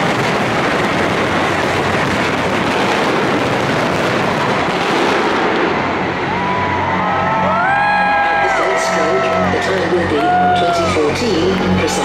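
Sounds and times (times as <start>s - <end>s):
fireworks crackling and rumbling: 0.0s - 7.9s.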